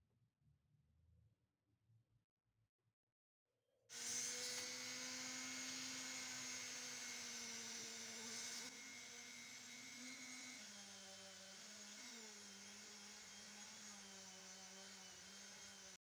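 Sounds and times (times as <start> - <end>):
rotary tool whining: 3.9 - 16.0
polishing wheel buffing metal: 4.0 - 16.0.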